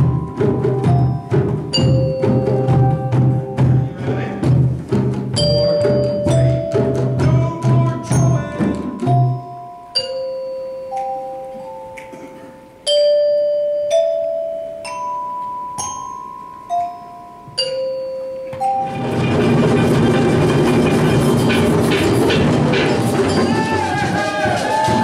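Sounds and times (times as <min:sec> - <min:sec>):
dense group percussion: 0:00.0 - 0:09.8, 0:18.6 - 0:25.0
tuned percussion notes ringing: 0:00.0 - 0:25.0.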